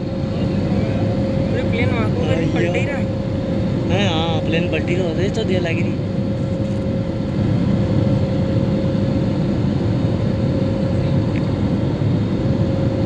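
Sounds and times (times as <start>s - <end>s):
jet engines rumbling: 0.0s - 13.0s.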